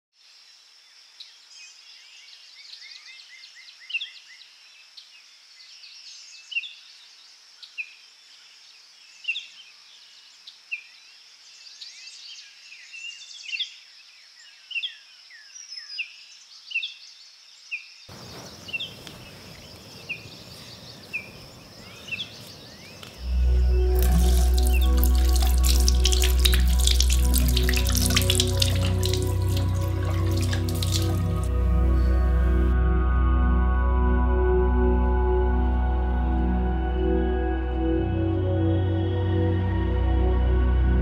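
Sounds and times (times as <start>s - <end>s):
insects droning: 17.4s - 32.6s
birds chirping: 18.1s - 32.7s.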